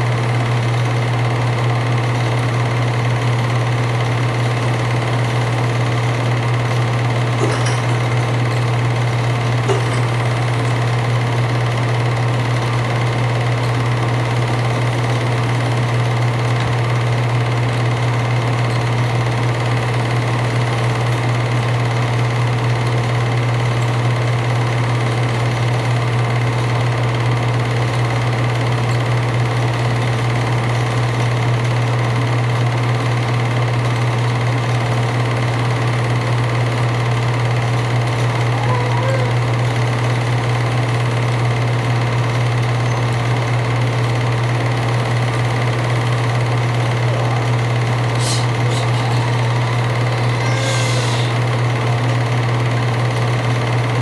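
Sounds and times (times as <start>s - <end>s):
constant low hum: 0.0s - 32.2s, 36.5s - 54.0s
film projector whirr: 0.0s - 54.0s.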